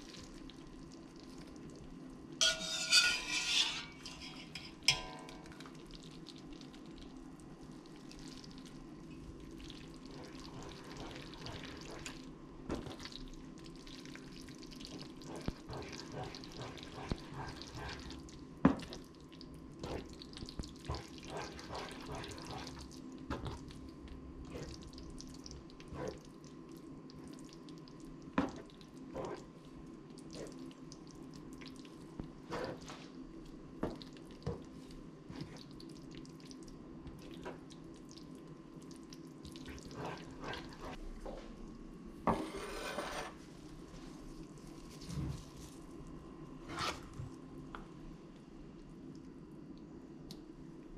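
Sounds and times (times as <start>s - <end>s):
wet squelching food stirred: 0.0s - 41.9s, 42.6s - 47.5s
spatula scraping a pan: 2.4s - 5.1s, 42.3s - 43.4s, 46.6s - 47.1s.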